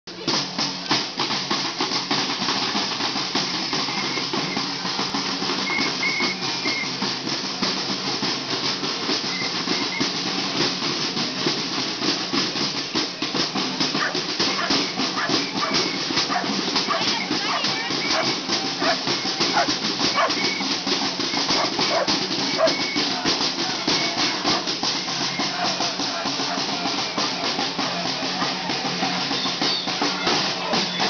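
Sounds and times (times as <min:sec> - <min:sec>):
drum strikes: 0:00.1 - 0:31.0
marching crowd noise: 0:00.1 - 0:31.0
shakers: 0:11.0 - 0:31.0.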